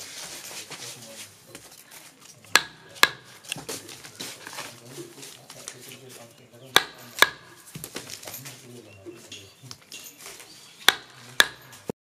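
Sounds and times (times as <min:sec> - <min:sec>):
wooden mallet knocking on rammer: 0:02.5 - 0:03.4, 0:06.7 - 0:07.9, 0:10.8 - 0:11.9.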